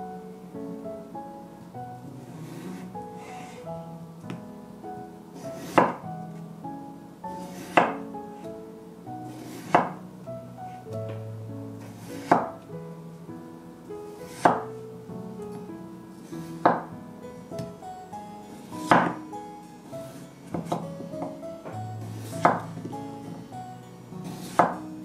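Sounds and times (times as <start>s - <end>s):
light background music: 0.0s - 25.0s
knife slicing potato on wooden board: 5.6s - 6.0s, 9.4s - 10.0s, 12.1s - 12.5s, 14.3s - 14.6s.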